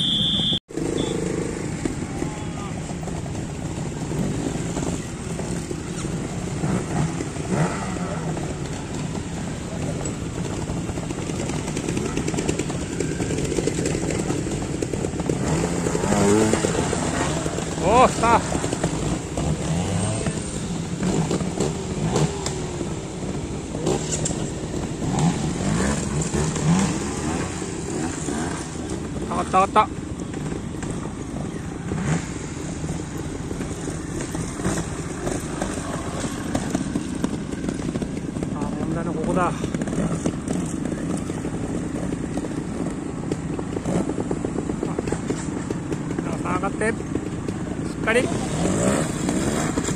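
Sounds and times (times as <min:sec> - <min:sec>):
motorcycle engine idling: 0:00.0 - 0:49.9.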